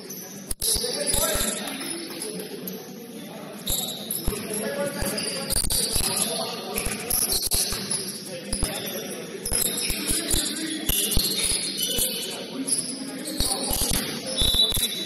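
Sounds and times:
ball bouncing: 3.7s - 6.2s, 6.8s - 8.8s.

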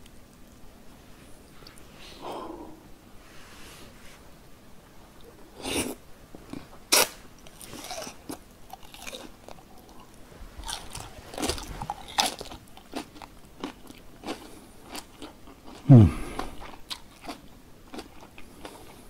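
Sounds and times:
chewing crunchy fried food: 6.5s - 19.0s.

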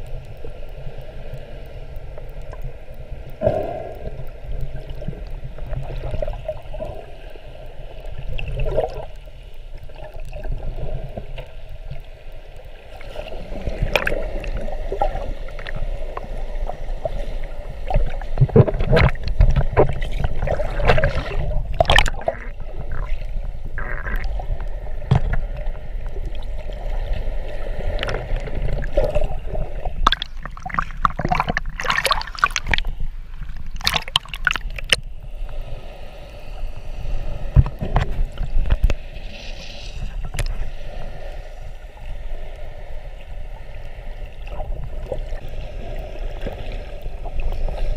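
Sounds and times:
splashes and bubbling: 0.0s - 47.9s
underwater gurgling and sloshing: 0.0s - 47.9s.

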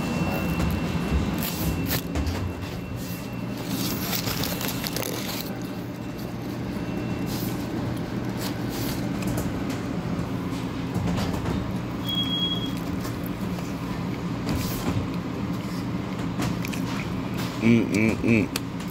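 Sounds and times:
low kitchen machinery hum: 0.0s - 18.9s
foil and plastic bag crinkling: 3.6s - 6.3s.

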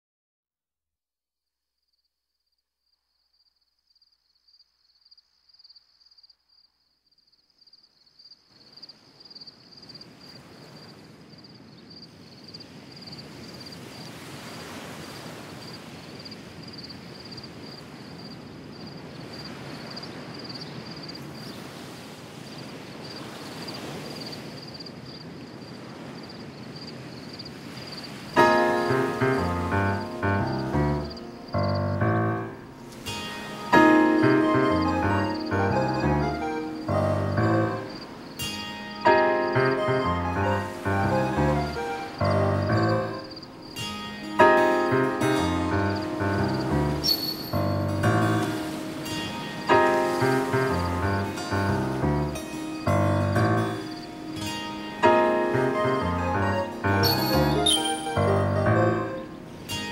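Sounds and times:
rain-like hiss: 7.4s - 59.9s
high rapidly pulsing chirp: 45.9s - 47.8s, 57.0s - 59.2s.

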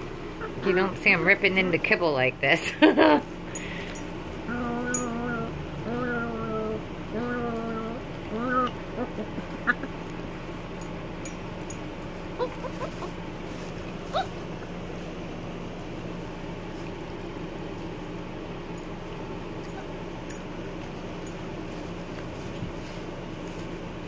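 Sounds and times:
steady low hum: 0.0s - 24.0s
puppy whimpers: 4.5s - 10.0s, 12.4s - 13.2s, 14.0s - 14.7s, 19.6s - 20.1s
puppies chewing and tearing meat: 7.0s - 24.0s.

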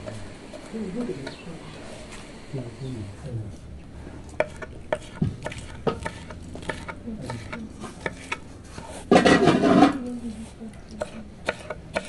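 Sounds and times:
loud kitchen clatter: 9.1s - 10.0s.

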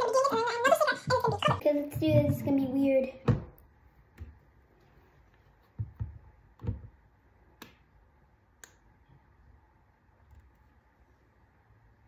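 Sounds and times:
dull taps on tabletop: 5.8s - 6.9s.

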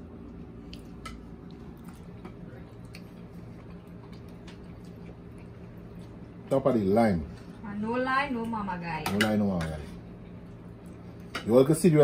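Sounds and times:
steady low hum: 0.0s - 12.0s
faint eating clicks and taps: 0.2s - 6.3s, 9.0s - 11.6s.

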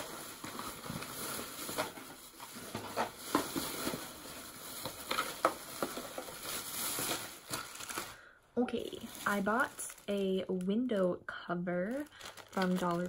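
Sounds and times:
plastic bags rustling: 0.0s - 11.1s, 11.8s - 13.0s.

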